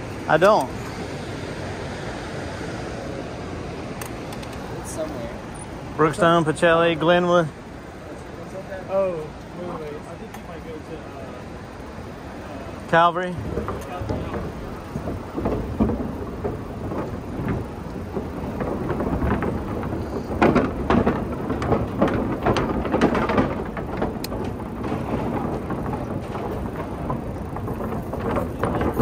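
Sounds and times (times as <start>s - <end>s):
bike clicks and rattles: 0.0s - 1.8s, 3.7s - 29.0s
bike rolling along a trail: 0.0s - 29.0s.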